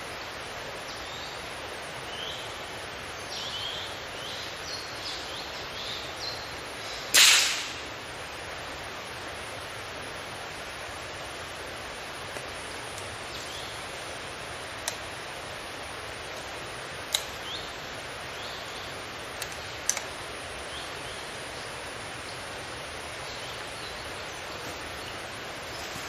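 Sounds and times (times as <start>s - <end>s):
forest ambience hiss: 0.0s - 26.0s
sharp clicks: 17.1s - 17.5s, 19.3s - 20.2s.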